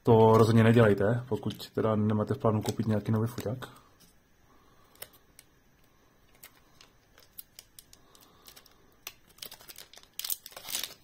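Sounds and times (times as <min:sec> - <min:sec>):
packaging rustling: 0:06.3 - 0:11.0.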